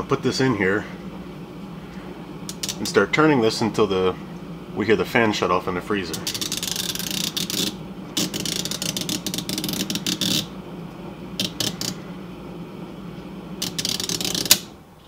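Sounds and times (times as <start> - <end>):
refrigerator compressor hum: 0.0 - 15.0
timer gears ratcheting clicks: 6.2 - 10.5, 13.6 - 14.6.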